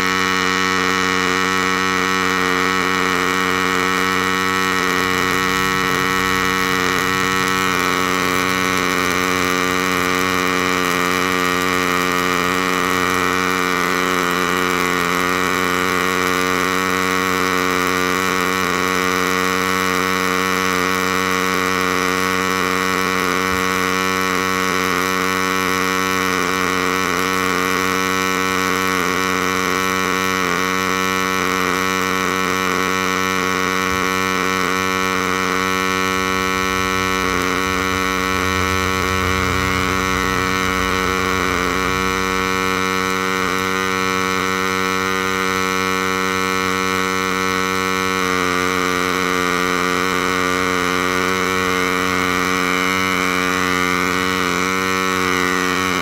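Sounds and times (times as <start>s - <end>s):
welding arc buzzing: 0.7s - 19.6s, 32.7s - 47.1s.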